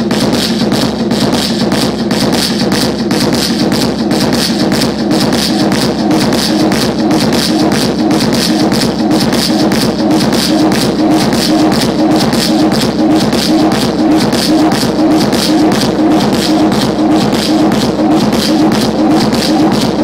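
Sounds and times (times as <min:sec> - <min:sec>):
loud electronic music: 0:00.0 - 0:20.0.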